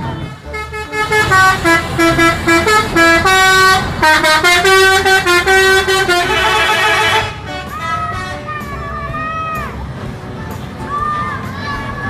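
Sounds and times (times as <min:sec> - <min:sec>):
musical bus horn tune: 0:00.0 - 0:08.8.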